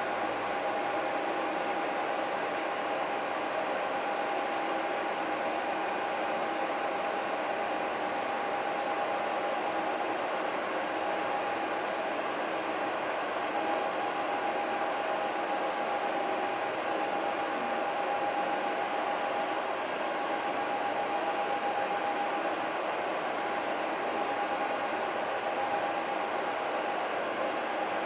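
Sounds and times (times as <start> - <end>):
faint steady whine: 0.0 - 28.0.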